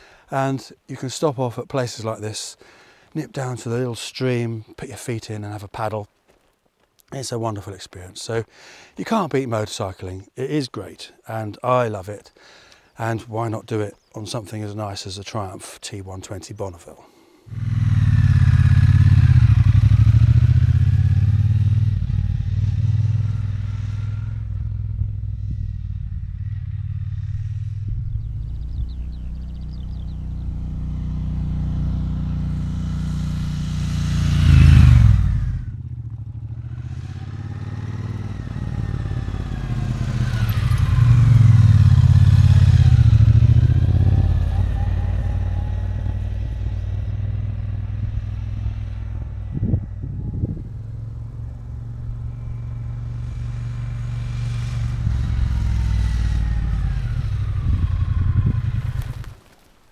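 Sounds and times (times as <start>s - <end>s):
motorcycle engine passing by: 17.5s - 59.6s.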